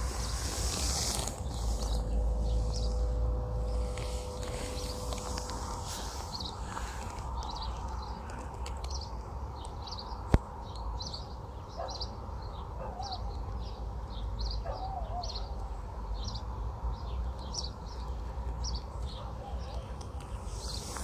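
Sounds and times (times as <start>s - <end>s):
low background rumble: 0.0s - 10.1s.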